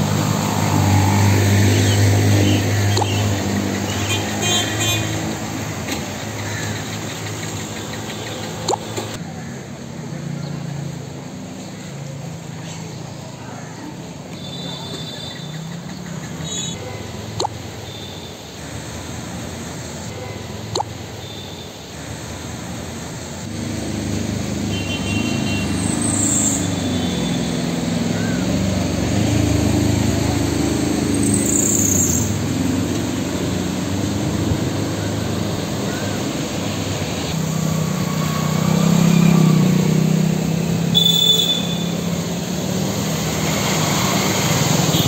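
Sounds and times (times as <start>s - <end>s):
vehicles driving through water: 0.0s - 45.0s.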